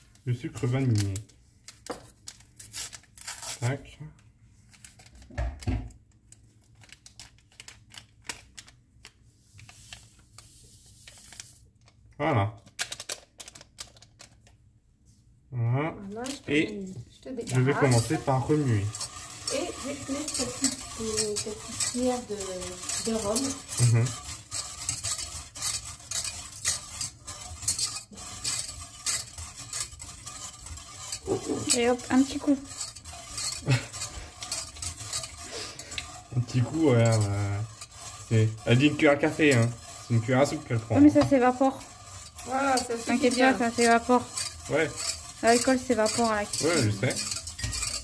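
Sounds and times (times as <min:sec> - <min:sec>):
whisk scraping metal saucepan: 0:00.0 - 0:01.3, 0:02.3 - 0:03.8, 0:16.1 - 0:48.0.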